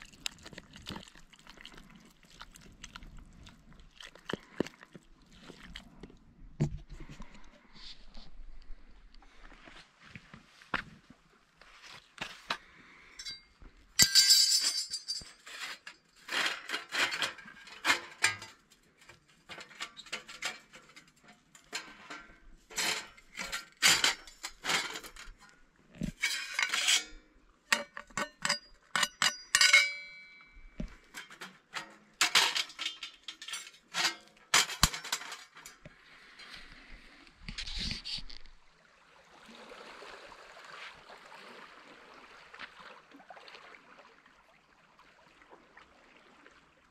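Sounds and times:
metal stove panels clinking: 14.0s - 15.4s, 16.5s - 18.6s, 19.5s - 25.4s, 27.7s - 30.4s, 31.1s - 35.8s.

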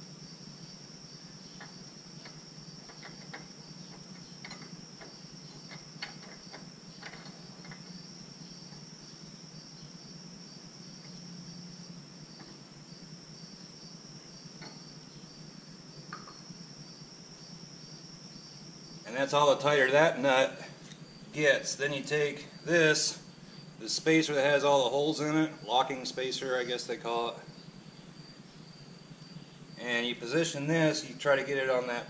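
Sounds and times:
crickets chirping: 0.0s - 32.0s
metal tools clicking and tapping: 4.2s - 7.9s.

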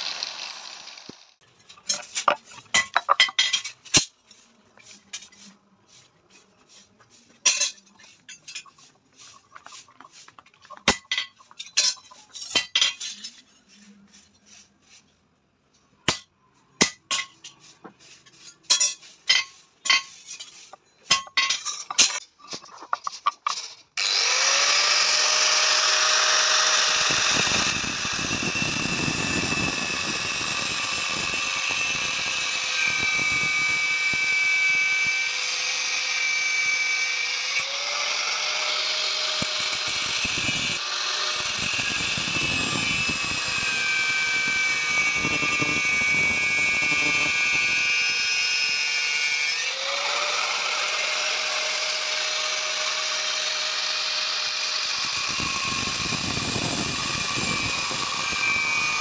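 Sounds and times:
angle grinder cutting metal: 0.0s - 9.9s, 23.0s - 59.0s.

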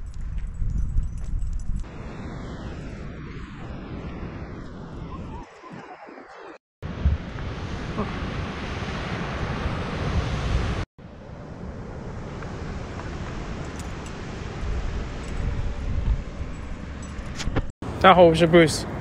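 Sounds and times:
wind buffeting microphone: 0.0s - 6.0s, 6.8s - 10.8s, 11.9s - 17.7s
ocean surf: 1.9s - 16.8s.

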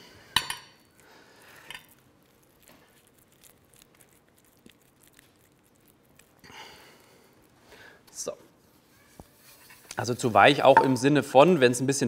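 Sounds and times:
hands squishing sticky mixture: 0.9s - 9.0s.

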